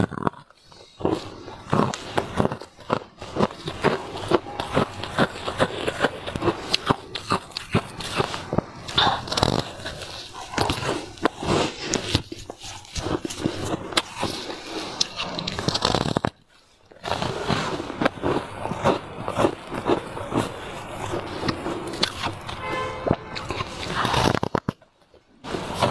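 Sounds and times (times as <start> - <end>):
ice being bitten and chewed: 0.0 - 25.9.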